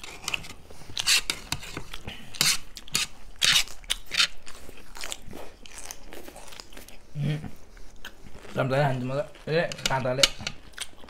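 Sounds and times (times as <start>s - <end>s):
fork scraping a plate: 0.0s - 4.4s, 9.5s - 10.6s
person chewing: 0.0s - 11.0s.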